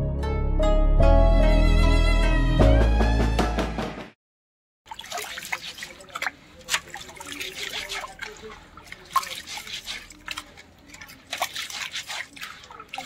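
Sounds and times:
hands rubbing grains in water: 4.9 - 13.0
water splashing in metal basin: 4.9 - 13.0.

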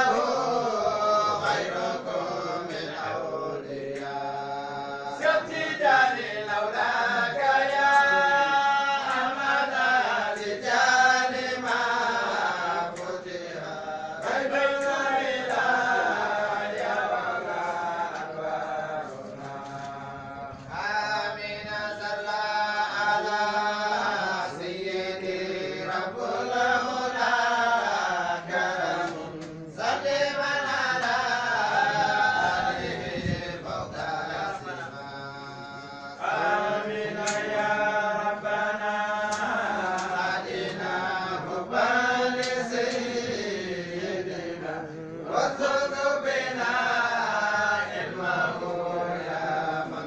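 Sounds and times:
person chanting: 0.0 - 50.0.

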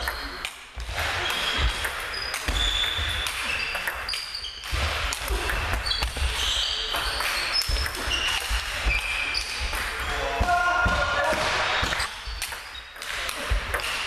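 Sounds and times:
shoe squeaks: 0.0 - 0.4, 1.1 - 4.7, 5.3 - 10.1.

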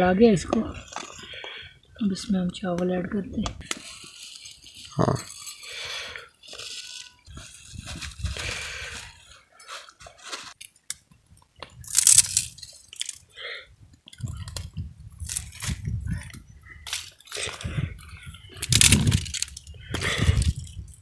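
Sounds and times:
plastic bag crinkling: 3.6 - 10.8, 11.8 - 13.3, 18.5 - 20.9.

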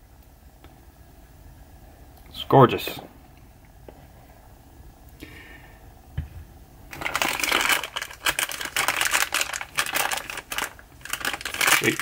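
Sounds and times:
plastic packaging crinkling: 6.9 - 12.0.

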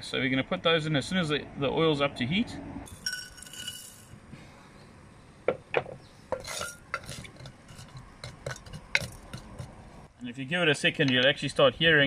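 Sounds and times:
wooden spoon scraping pan: 6.3 - 10.1.

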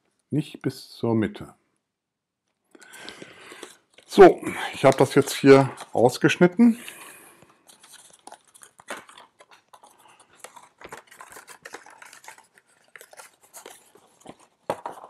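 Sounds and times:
card stock crackling and rustling: 3.0 - 6.2, 7.4 - 15.0.

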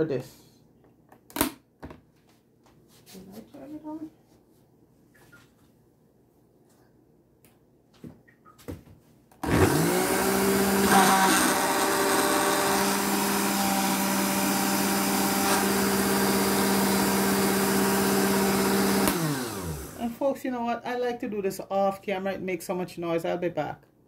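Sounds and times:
blender motor running: 9.4 - 20.0.

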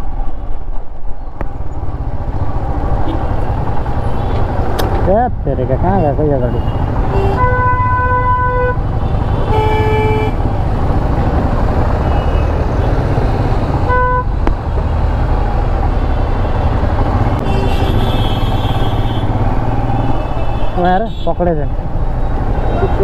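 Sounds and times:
vehicle horns honking: 6.0 - 10.4, 13.9 - 14.3, 17.4 - 21.5.

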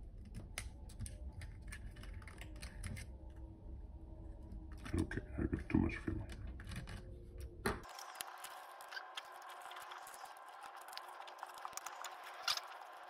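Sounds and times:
fingers handling film and camera: 7.8 - 13.0.

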